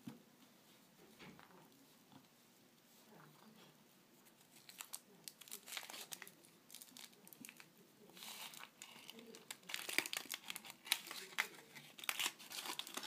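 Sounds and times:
foil wrapper crinkling and tearing: 0:04.6 - 0:13.0.

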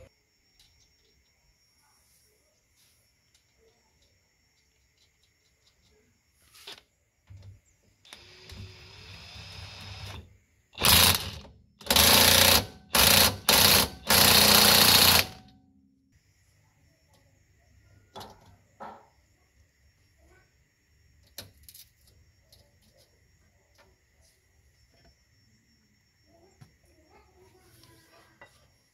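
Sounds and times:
impact wrench hammering: 0:10.8 - 0:15.4
impact wrench whirring: 0:10.8 - 0:15.4.

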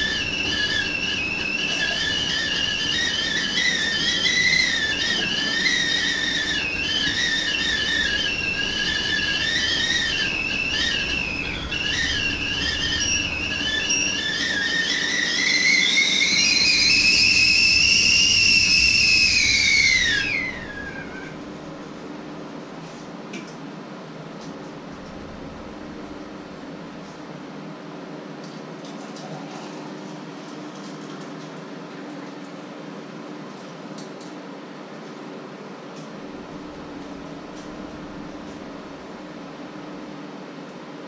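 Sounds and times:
kettle whistling: 0:00.0 - 0:22.0, 0:36.4 - 0:39.4.

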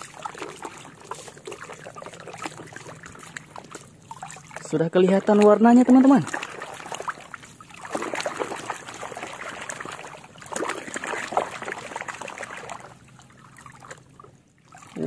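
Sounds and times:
water splashing in plastic basin: 0:00.0 - 0:15.0.

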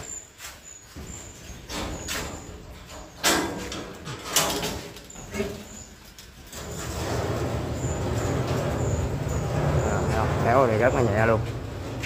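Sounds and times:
low rumble of door on track: 0:06.5 - 0:12.0.

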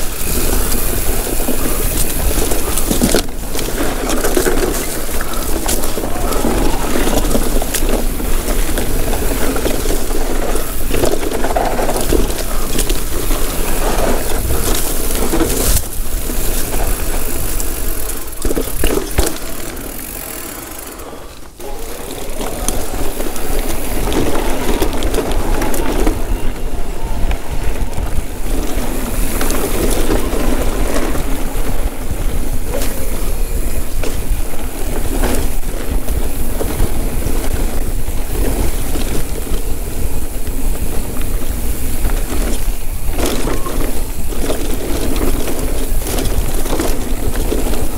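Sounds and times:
bike rattling over rough trail: 0:00.0 - 0:47.9
wind on microphone: 0:22.6 - 0:47.9.

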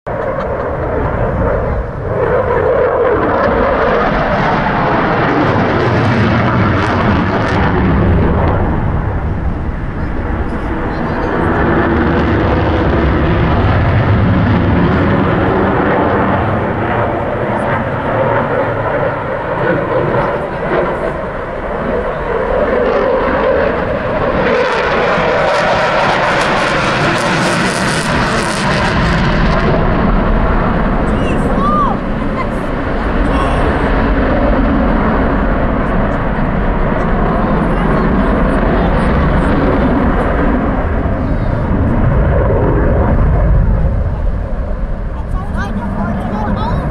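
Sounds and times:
fighter jet passing: 0:00.1 - 0:46.9.

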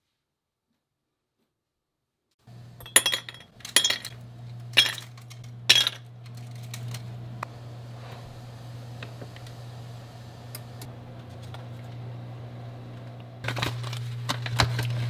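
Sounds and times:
steady low hum: 0:02.5 - 0:15.0
ice cubes clinking into glass jar: 0:02.8 - 0:04.2, 0:04.8 - 0:06.9.

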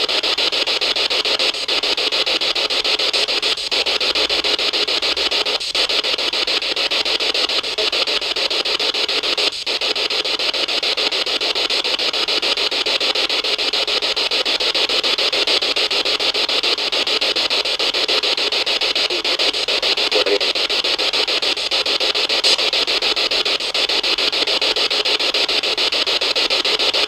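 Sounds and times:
loud hiss with choppy flutter: 0:17.6 - 0:24.2.

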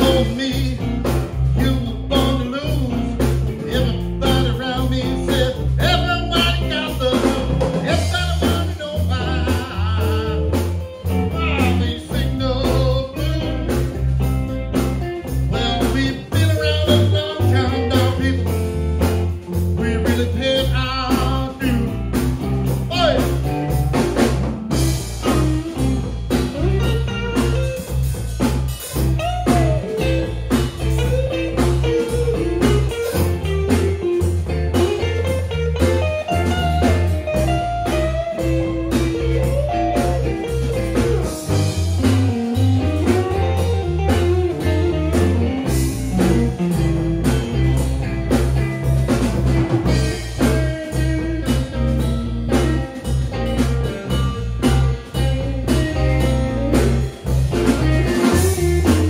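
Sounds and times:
man singing into a microphone: 0:00.0 - 0:13.9, 0:15.5 - 0:18.6, 0:19.8 - 0:22.0, 0:22.9 - 0:23.4
bass guitar: 0:00.0 - 0:59.0
electric guitars: 0:00.0 - 0:59.0
steady drum beat: 0:00.0 - 0:59.0.

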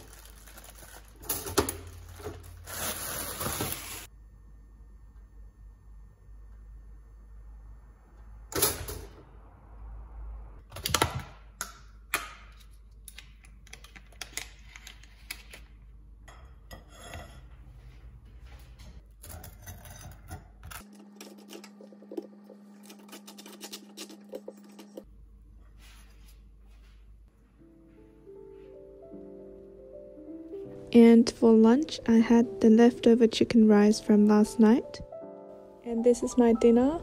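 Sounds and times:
steady low hum: 0:04.1 - 0:10.6.

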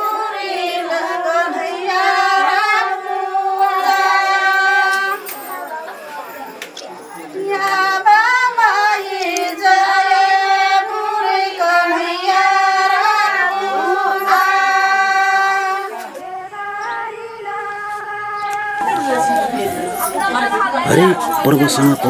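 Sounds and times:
women singing unaccompanied: 0:00.0 - 0:06.0, 0:07.2 - 0:22.0.

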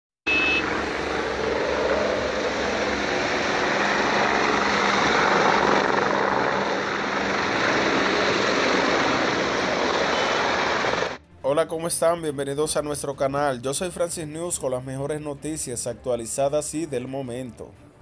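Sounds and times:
helicopter rotors and engines: 0:00.3 - 0:11.2.

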